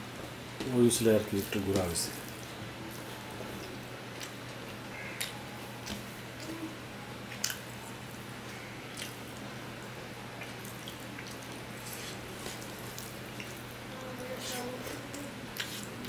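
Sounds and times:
steady low hum: 0:00.0 - 0:16.0
wet chewing: 0:07.3 - 0:16.0.

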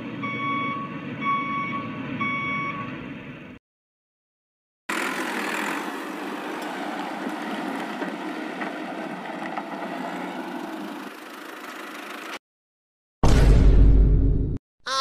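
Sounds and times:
tractor engine running: 0:04.9 - 0:12.4.

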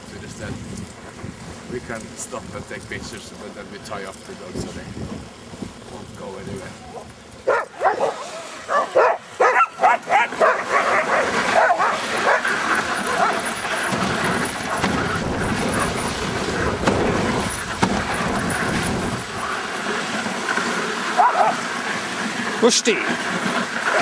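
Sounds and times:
sled rushing over snow: 0:04.5 - 0:24.0
huskies yipping and barking: 0:07.4 - 0:19.8, 0:21.0 - 0:22.0, 0:23.0 - 0:24.0.

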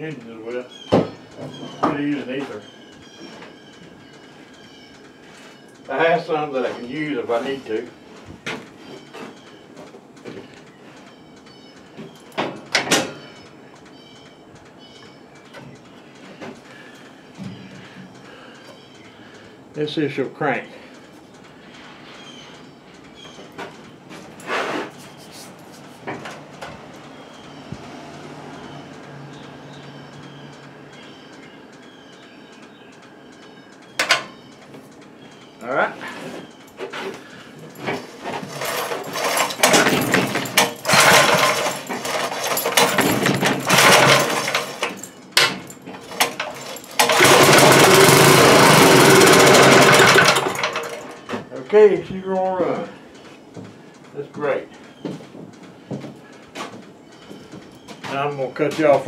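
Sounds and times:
tiller scraping and knocking: 0:23.6 - 0:25.2, 0:37.8 - 0:51.2
engine cranking: 0:33.8 - 0:52.9
small engine running: 0:38.2 - 0:45.1, 0:46.1 - 0:51.2.

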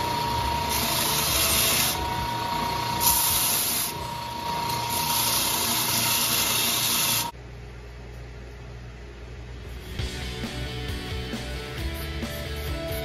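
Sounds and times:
belt sander motor running: 0:00.0 - 0:07.3.

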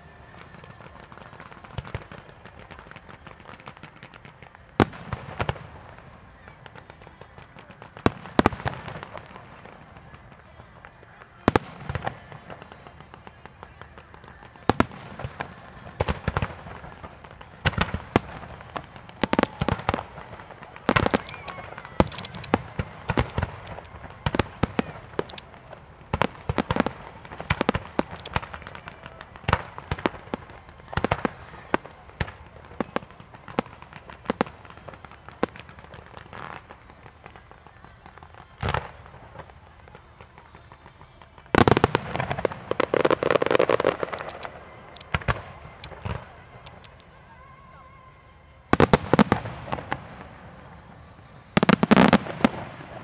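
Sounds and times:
firework shells bursting: 0:17.7 - 0:28.7, 0:41.6 - 0:47.1.

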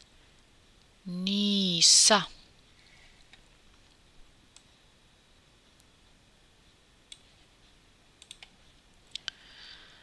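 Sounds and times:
computer mouse clicks: 0:03.2 - 0:04.7, 0:07.0 - 0:07.4, 0:08.2 - 0:09.4.

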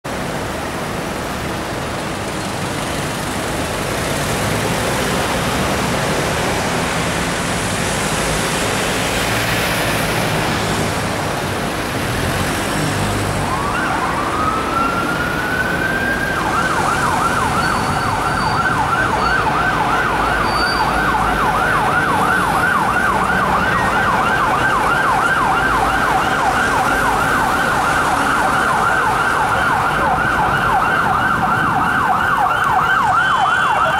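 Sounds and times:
city traffic: 0:00.0 - 0:33.9
police siren wailing and yelping: 0:13.3 - 0:33.9.

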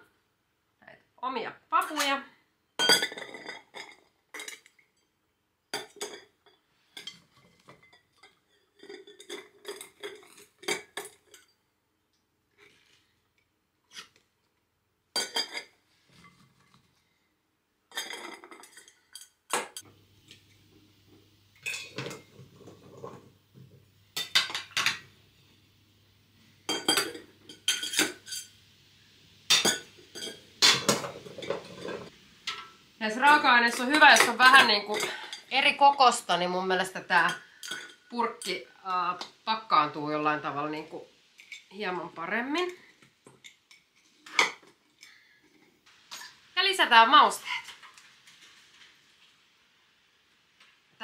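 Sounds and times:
glass jars and utensils clinking: 0:02.8 - 0:04.8, 0:05.8 - 0:11.5, 0:15.2 - 0:16.4, 0:17.9 - 0:19.8, 0:21.6 - 0:23.3, 0:26.7 - 0:28.5, 0:29.5 - 0:35.5, 0:37.2 - 0:38.6.

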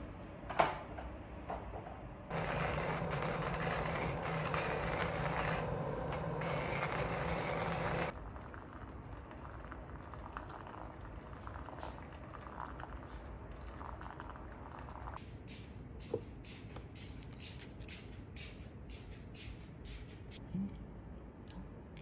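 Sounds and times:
coffee grinder crunching beans: 0:02.3 - 0:11.6.

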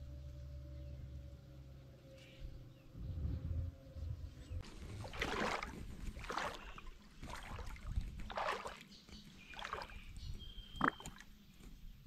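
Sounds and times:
legs wading through water: 0:04.6 - 0:11.5.

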